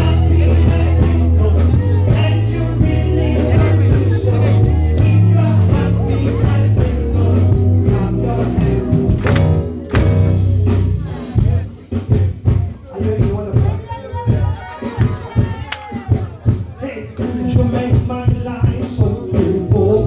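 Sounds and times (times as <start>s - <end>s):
gospel singers with band: 0.0s - 13.6s, 14.3s - 20.0s
strong steady bass: 0.0s - 14.5s.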